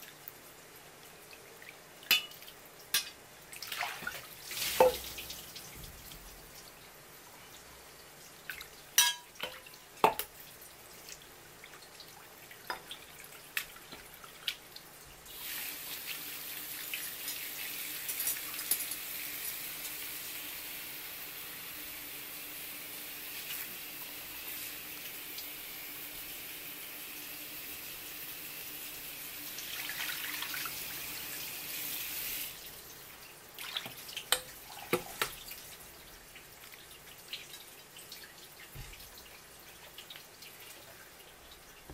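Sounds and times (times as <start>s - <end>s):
tap water pouring into steel bowl: 2.0s - 5.7s, 33.6s - 35.6s
sharp splashes and knocks: 3.7s - 5.2s.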